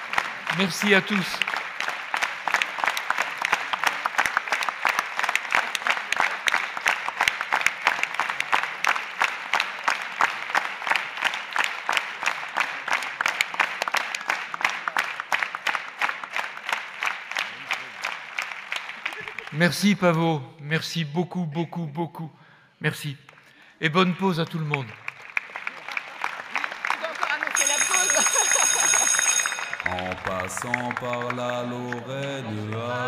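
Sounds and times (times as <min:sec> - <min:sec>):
crowd clapping: 0:00.0 - 0:20.2, 0:23.3 - 0:33.0.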